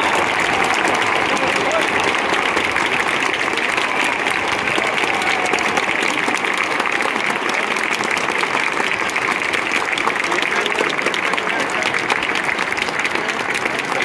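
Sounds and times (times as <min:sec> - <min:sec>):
crowd applauding: 0:00.0 - 0:14.0
crowd noise: 0:00.0 - 0:14.0.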